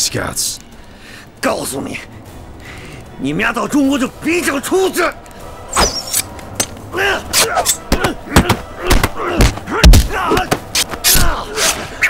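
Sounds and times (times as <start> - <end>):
fighters grunting and shouting: 6.7 - 12.0
punch and kick impacts: 7.8 - 11.3.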